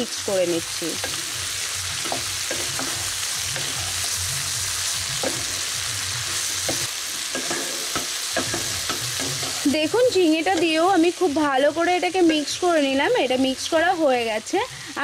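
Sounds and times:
vegetables sizzling in pan: 0:00.0 - 0:15.0
spatula scraping and knocking pan: 0:01.0 - 0:10.9.

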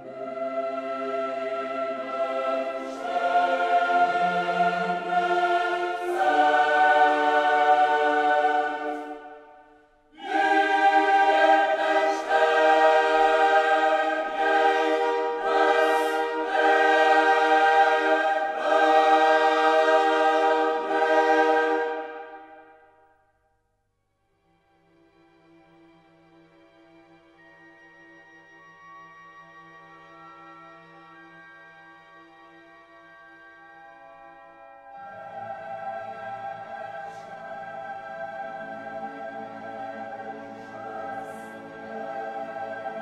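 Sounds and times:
choir singing held chords: 0:00.0 - 0:23.1, 0:34.8 - 0:43.0.

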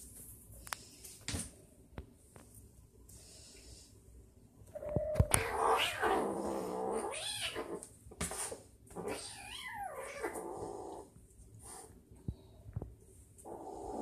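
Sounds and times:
kitten growling and yowling: 0:04.8 - 0:07.8, 0:08.9 - 0:11.1, 0:13.4 - 0:14.0.

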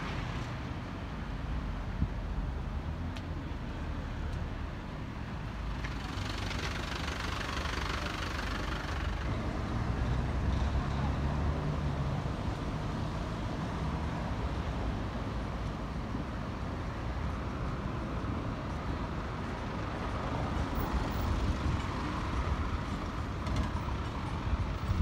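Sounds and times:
traffic engines rumbling: 0:00.0 - 0:25.0.

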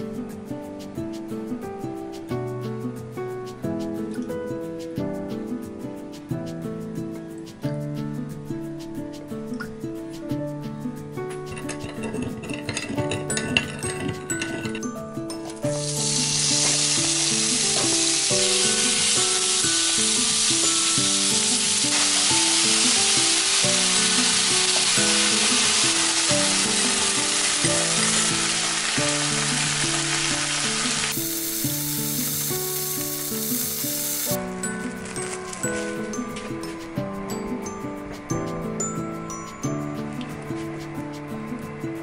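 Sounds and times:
soft background music: 0:00.0 - 0:42.0
food sizzling in a frying pan: 0:15.7 - 0:34.4.

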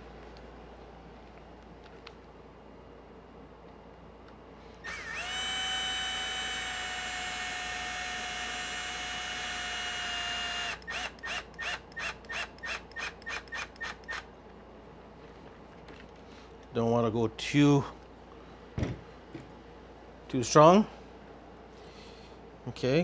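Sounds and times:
cordless drill motor whining: 0:04.8 - 0:14.3.

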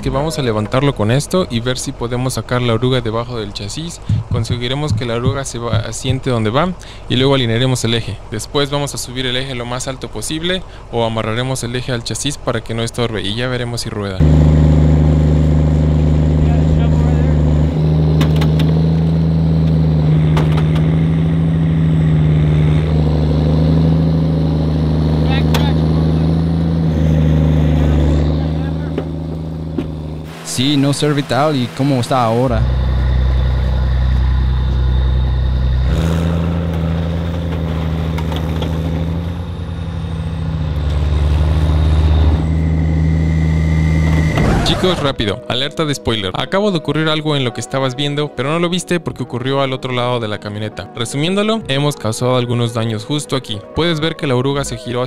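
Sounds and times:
diesel engine running: 0:00.0 - 0:11.0, 0:14.1 - 0:46.1.

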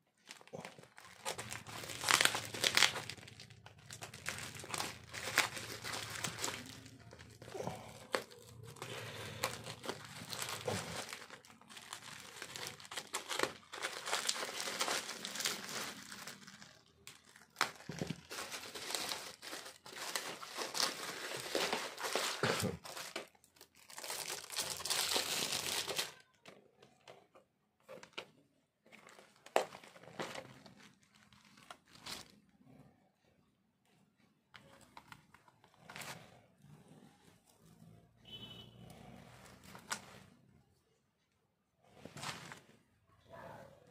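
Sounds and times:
bubble wrap crinkling: 0:00.1 - 0:26.4, 0:28.9 - 0:32.5
plastic tray rustling: 0:17.5 - 0:23.4.

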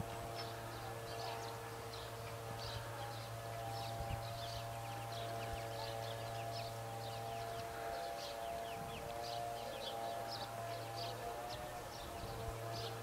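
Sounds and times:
birds chirping: 0:00.0 - 0:13.0
electrical hum with tones: 0:00.0 - 0:13.0.

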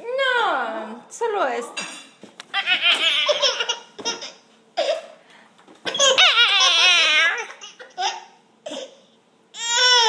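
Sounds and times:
baby laughing and giggling: 0:02.5 - 0:05.0, 0:05.9 - 0:08.9.

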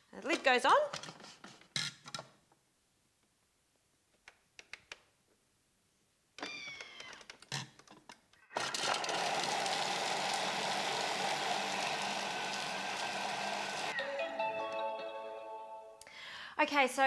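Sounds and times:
food processor whirring and chopping: 0:08.5 - 0:14.0.

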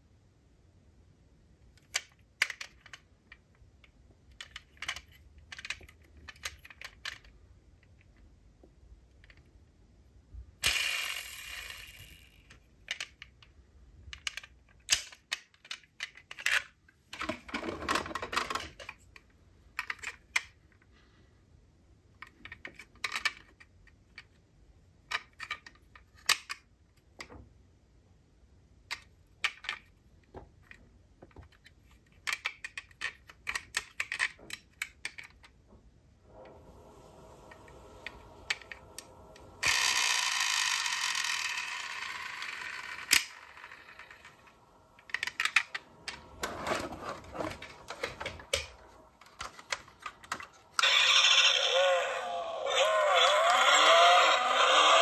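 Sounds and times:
toy cars clicking and clacking: 0:01.8 - 0:03.6, 0:04.3 - 0:08.2, 0:10.6 - 0:20.6, 0:22.2 - 0:24.4, 0:25.0 - 0:26.7, 0:30.7 - 0:35.6, 0:38.0 - 0:55.0.

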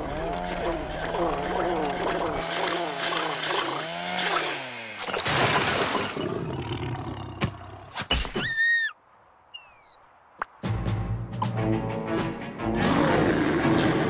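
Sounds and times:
high squeaky gliding cries: 0:07.7 - 0:10.0.

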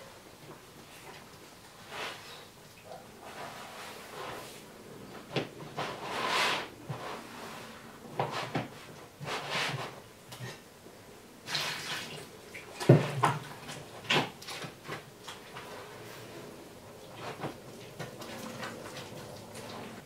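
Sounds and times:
hands kneading wet dough: 0:11.4 - 0:20.0.

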